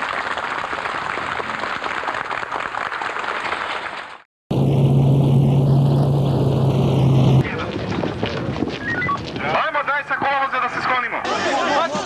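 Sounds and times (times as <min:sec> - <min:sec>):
crowd applauding: 0:00.0 - 0:04.3.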